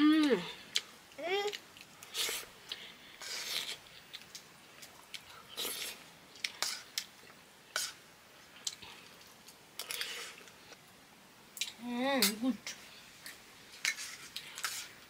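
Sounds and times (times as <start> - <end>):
food scraped from plate: 13.8 - 15.0.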